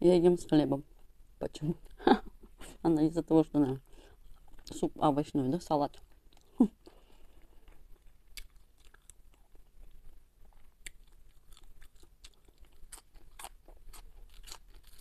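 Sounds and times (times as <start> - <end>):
person chewing crisp onion: 6.0 - 15.0.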